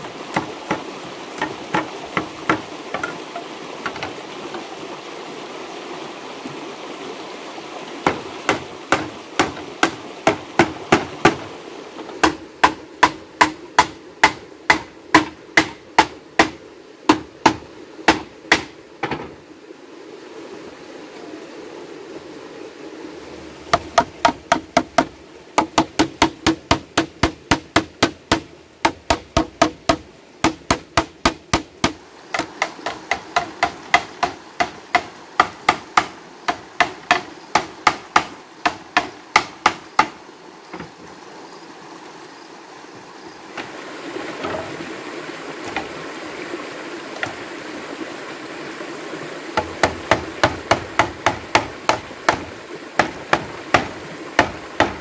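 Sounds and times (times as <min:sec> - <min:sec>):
hammer blows on hollow bamboo: 0:00.0 - 0:04.7, 0:08.0 - 0:19.4, 0:23.6 - 0:41.1, 0:45.6 - 0:46.1, 0:49.6 - 0:55.0
stream rushing: 0:00.0 - 0:55.0.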